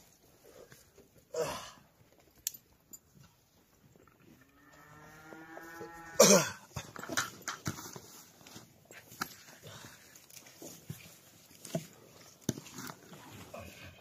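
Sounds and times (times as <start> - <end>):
cow mooing: 4.4 - 6.6.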